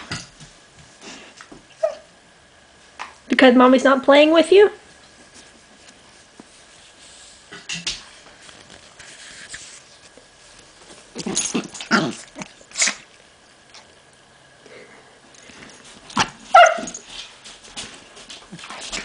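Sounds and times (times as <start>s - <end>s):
dogs play-fighting: 10.7s - 13.2s, 15.4s - 19.0s.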